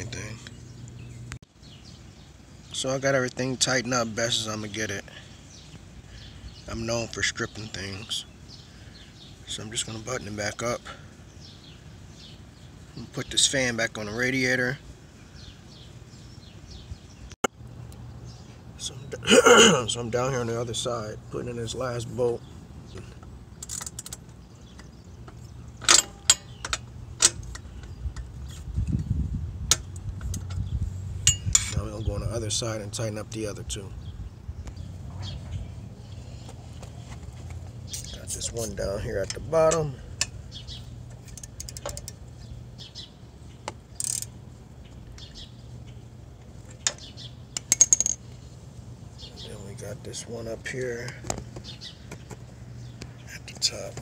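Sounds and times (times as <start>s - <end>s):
socket ratchet clicking on metal: 41.2s - 42.2s, 44.0s - 44.3s.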